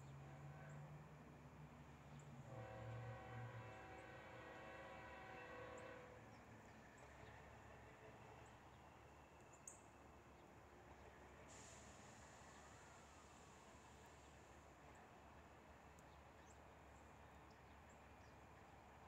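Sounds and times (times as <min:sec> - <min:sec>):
faint low train rumble: 0:00.0 - 0:19.0
distant locomotive air horn: 0:02.4 - 0:06.4.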